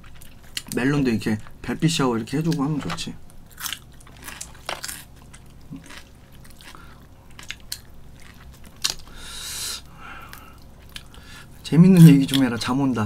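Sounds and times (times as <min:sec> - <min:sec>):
fried chicken being chewed: 0:02.4 - 0:09.2, 0:10.2 - 0:11.3.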